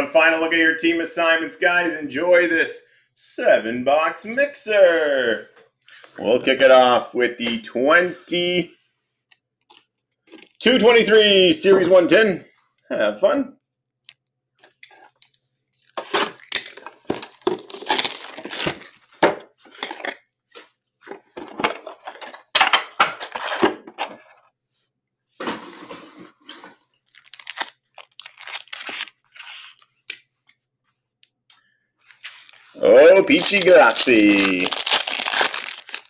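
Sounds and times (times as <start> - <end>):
plastic shrink wrap tearing: 15.8 - 19.1, 27.0 - 29.8, 32.0 - 36.0
foil packs crinkling: 15.8 - 20.2, 21.8 - 23.7, 27.0 - 29.6, 32.0 - 36.0.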